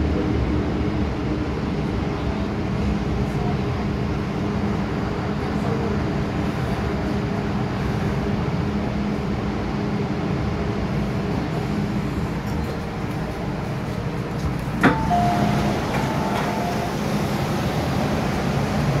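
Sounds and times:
train low rumble: 0.0 - 19.0
sliding doors clunk and open: 12.4 - 19.0
two-tone sound: 14.8 - 17.2.

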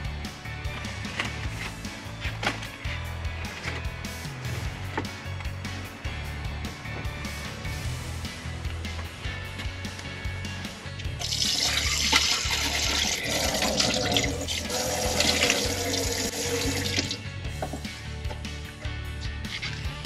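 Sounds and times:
background music: 0.0 - 20.0
tap water running and splashing: 11.2 - 17.2.

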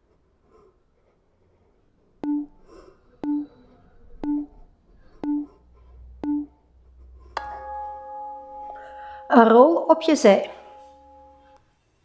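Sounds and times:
short low beeps with clicks: 2.2 - 2.5, 3.2 - 3.5, 4.2 - 4.5, 5.2 - 5.5, 6.2 - 6.5.

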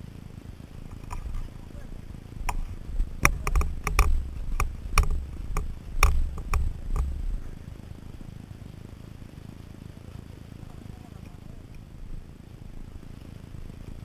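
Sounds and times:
dirt bike low rumble: 0.0 - 14.0
sharp knocks and rattles: 0.8 - 1.5, 2.4 - 7.6.

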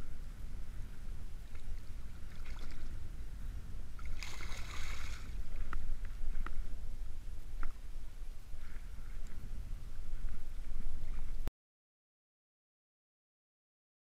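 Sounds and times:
wind rumble on microphone: 0.0 - 11.5
fish splashing at water surface: 4.0 - 5.3.

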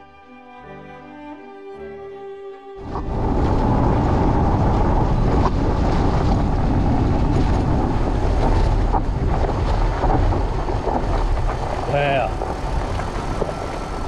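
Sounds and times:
bike knocking over bumps: 2.8 - 14.0
fat tyres rolling on dirt: 2.8 - 14.0
wind on microphone: 2.8 - 14.0.

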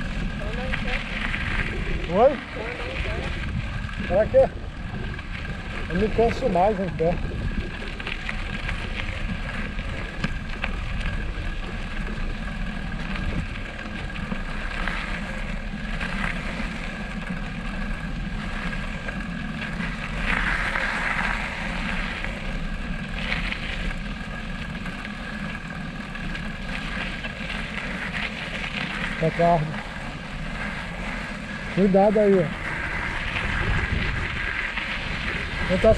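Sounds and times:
wind rushing over microphone: 0.0 - 11.7, 31.2 - 35.9.

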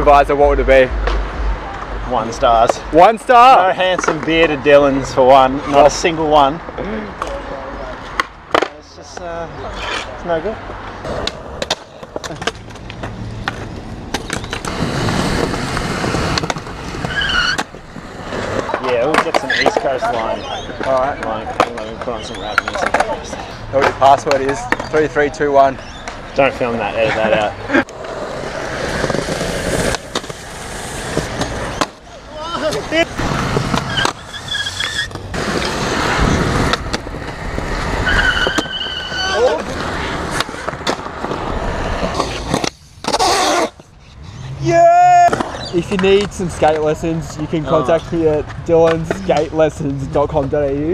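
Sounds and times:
skateboard wheels rolling on concrete: 0.0 - 50.9
skateboard clacking on ground: 3.8 - 4.5, 7.2 - 25.1, 27.8 - 37.7, 48.0 - 50.0.

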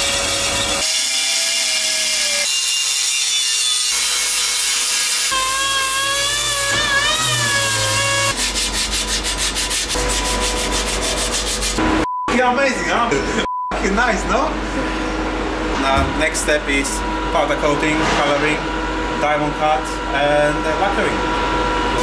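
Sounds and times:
orbital sander running: 4.0 - 12.0.

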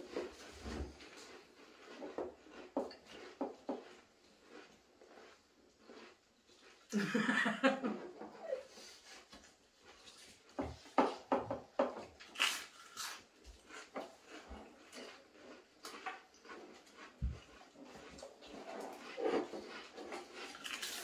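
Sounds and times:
crisps crunched and chewed: 1.0 - 6.9, 12.2 - 21.0.

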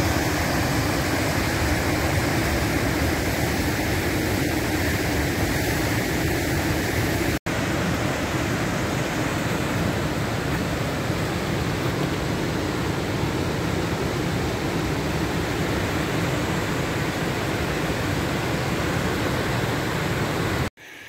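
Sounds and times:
rushing whitewater: 0.0 - 21.0.

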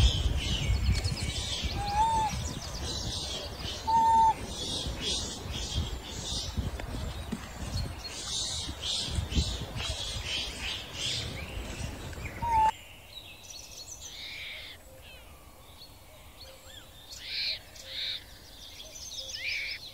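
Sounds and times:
high chirping calls: 0.0 - 12.8
baby monkey squealing: 3.9 - 4.4.

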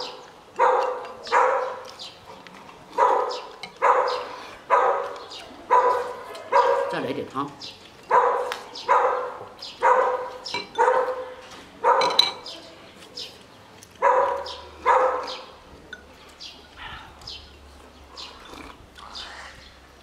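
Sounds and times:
dog barking: 0.6 - 1.9, 2.9 - 7.0, 8.1 - 12.2, 14.0 - 15.5.

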